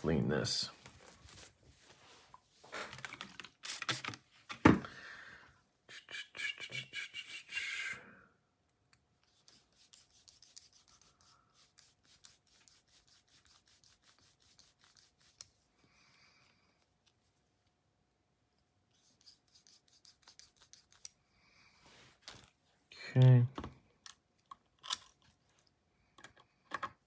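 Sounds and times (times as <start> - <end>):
cloth rubbing a knife: 9.2 - 15.7, 18.9 - 21.1.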